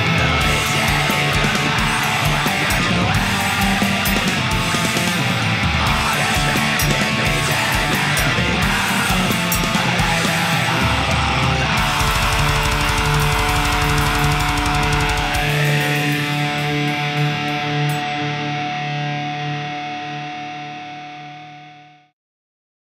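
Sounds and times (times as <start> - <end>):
fast drums: 0.0 - 17.5
bass guitar: 0.0 - 21.8
electric guitars: 0.0 - 22.0.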